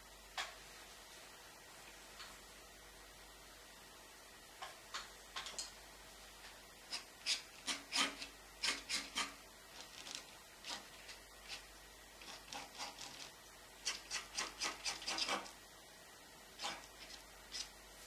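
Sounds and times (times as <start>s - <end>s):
palette knife scraping paint: 6.9s - 15.6s, 16.6s - 17.7s.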